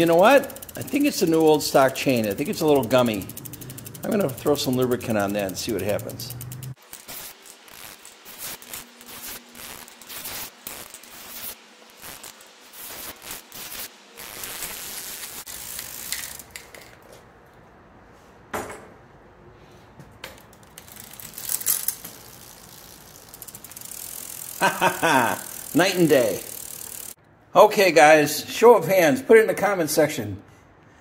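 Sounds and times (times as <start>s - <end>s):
bicycle chain clicking and rattling: 0.0s - 17.1s, 20.2s - 27.2s.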